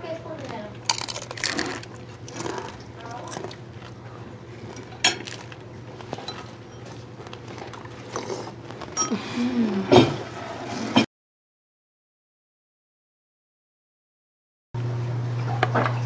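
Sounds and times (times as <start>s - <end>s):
dishes and cutlery clattering: 4.8s - 5.4s.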